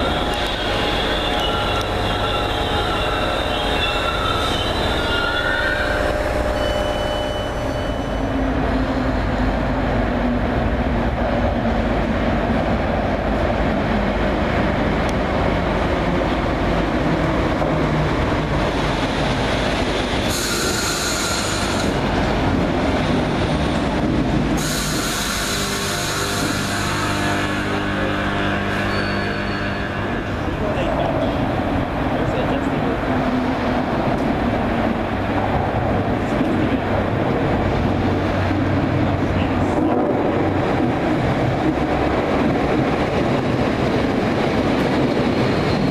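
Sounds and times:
train rumbling into station: 0.0s - 45.9s
high-pitched wheel squealing: 0.1s - 8.4s.

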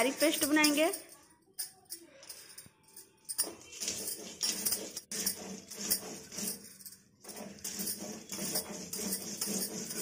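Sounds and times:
stone roller gritty scraping: 3.4s - 10.0s.

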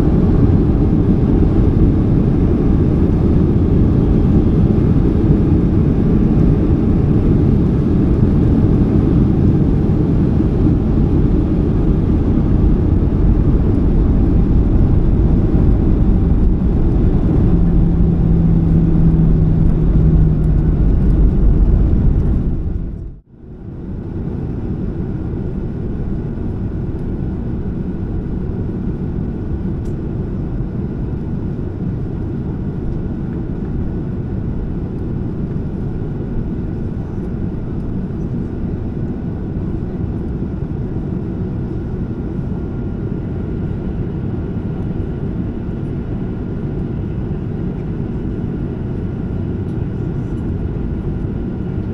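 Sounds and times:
rumble of wheels and engines: 0.0s - 51.9s.

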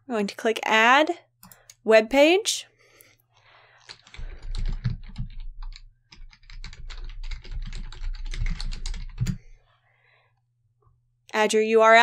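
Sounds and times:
typing on computer keyboard: 3.8s - 9.4s.

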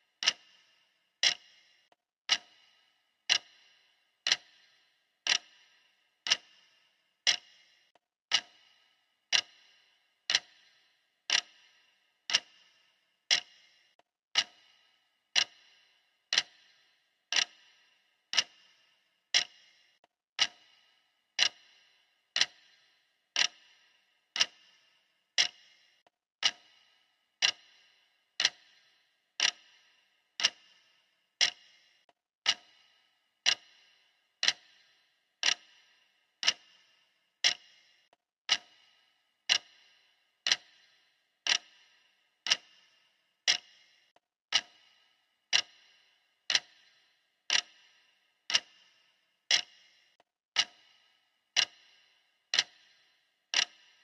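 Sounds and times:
clock ticking: 0.0s - 54.0s.

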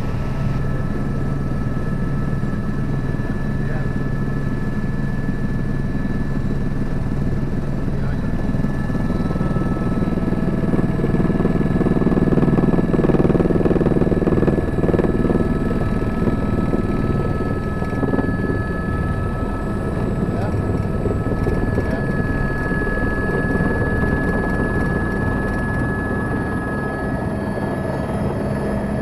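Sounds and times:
helicopter engine and rotor drone: 0.0s - 29.0s
high whine: 8.0s - 29.0s.

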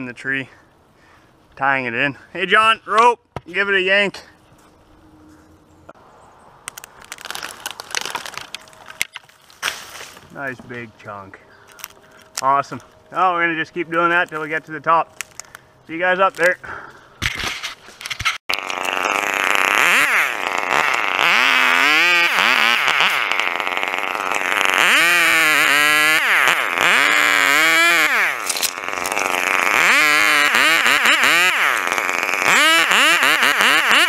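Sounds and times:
chainsaw revving: 18.5s - 34.0s.

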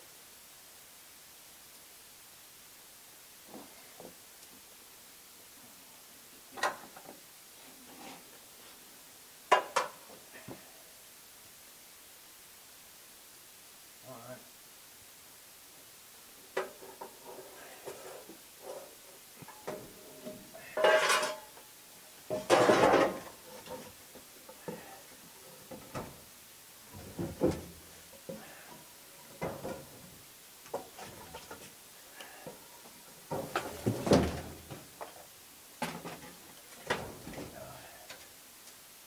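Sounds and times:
metallic clanks and knocks: 19.4s - 21.5s, 22.3s - 23.9s.

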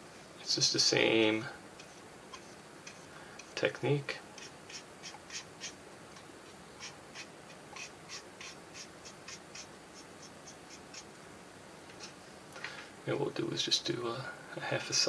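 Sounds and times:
soft paintbrush strokes: 0.0s - 11.1s.

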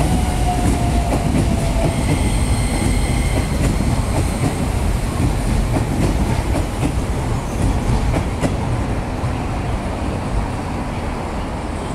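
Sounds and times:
train wheels clacking on rail joints: 0.0s - 8.7s
electric train rumbling: 0.0s - 11.9s.

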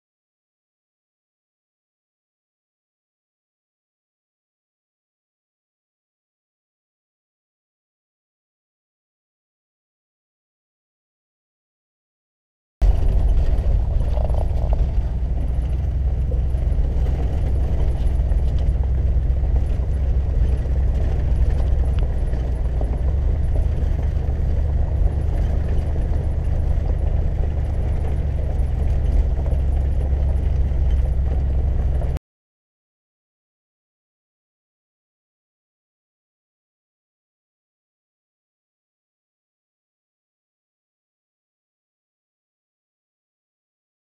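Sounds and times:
road noise: 12.8s - 32.2s
van engine rumble: 12.8s - 32.2s
wind noise: 12.8s - 32.2s.

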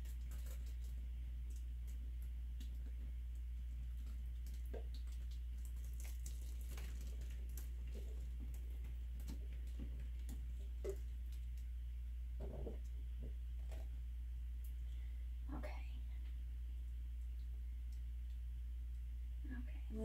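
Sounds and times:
paint dripping onto plastic: 0.0s - 13.9s, 16.8s - 19.1s
steady low hum: 0.0s - 20.0s.

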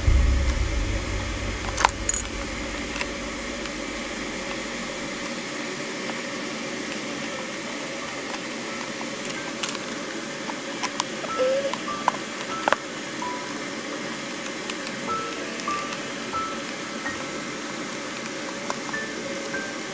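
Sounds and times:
low background hum: 0.0s - 5.4s.

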